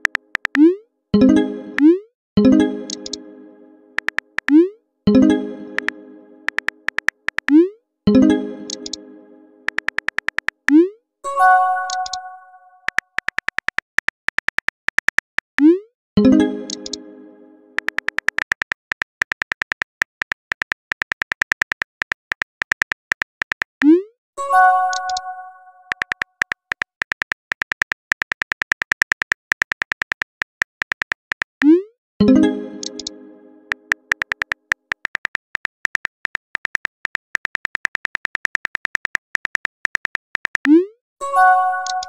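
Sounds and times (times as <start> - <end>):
phone keyboard clicks: 0.0 - 0.6, 2.9 - 3.2, 4.0 - 4.6, 6.5 - 7.6, 8.7 - 9.0, 9.7 - 10.8, 11.9 - 12.2, 12.9 - 15.6, 16.7 - 17.0, 17.8 - 23.8, 25.9 - 31.5, 32.8 - 33.1, 33.7 - 40.7
musical tone: 16.2 - 17.8, 32.2 - 34.0.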